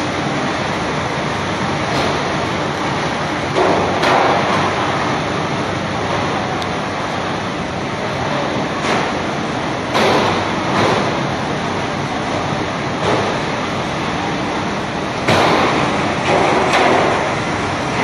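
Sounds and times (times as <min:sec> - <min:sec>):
washing machine water sprays rushing: 0:08.6 - 0:18.0.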